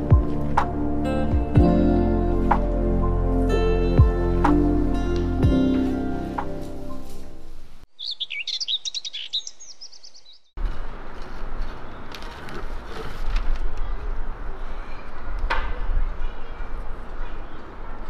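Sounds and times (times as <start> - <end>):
small birds chirping: 7.9 - 10.6.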